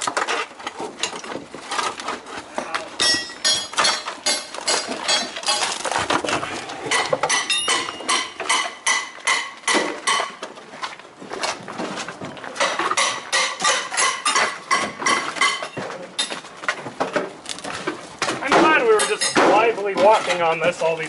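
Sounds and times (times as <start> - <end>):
metal tool clinking on roofing: 2.6 - 5.9, 6.9 - 10.4, 12.6 - 16.4, 18.4 - 20.7.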